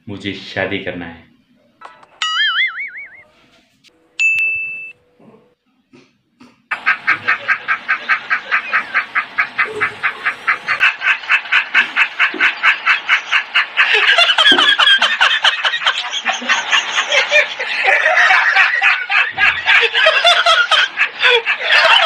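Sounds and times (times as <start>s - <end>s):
high-pitched cackling laughter: 6.7s - 22.0s.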